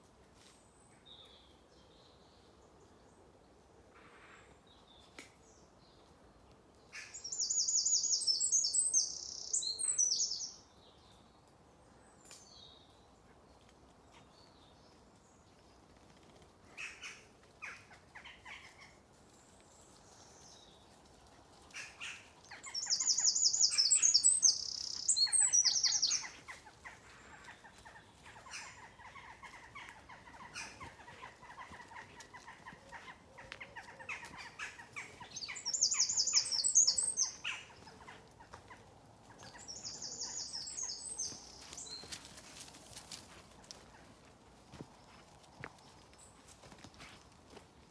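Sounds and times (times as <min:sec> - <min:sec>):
songbird singing: 0:07.0 - 0:13.2, 0:21.8 - 0:42.3
bird chirps and calls: 0:21.9 - 0:26.6, 0:28.4 - 0:38.1, 0:39.4 - 0:42.0.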